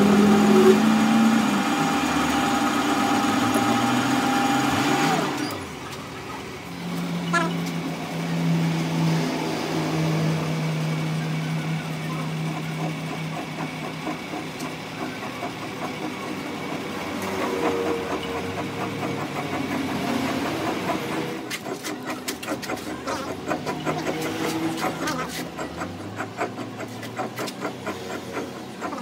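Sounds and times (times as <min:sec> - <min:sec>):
metal lathe humming: 0:00.0 - 0:21.5.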